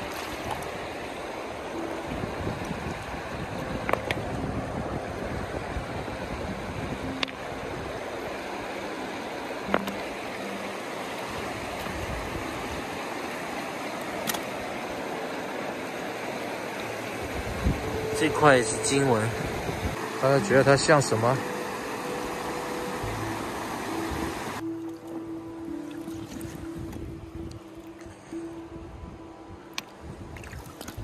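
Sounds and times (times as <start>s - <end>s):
river water running over stones: 0.0s - 28.2s, 29.8s - 31.0s.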